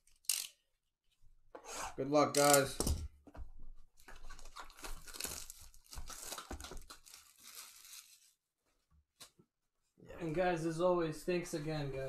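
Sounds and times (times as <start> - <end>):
plastic wrap crinkling and tearing: 4.2 - 8.4.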